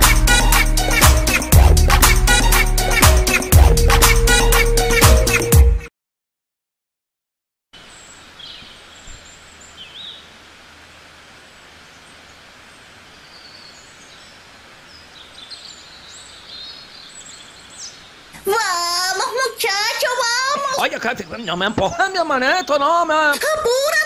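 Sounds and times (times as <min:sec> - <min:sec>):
steady hiss: 0:07.8 - 0:23.2.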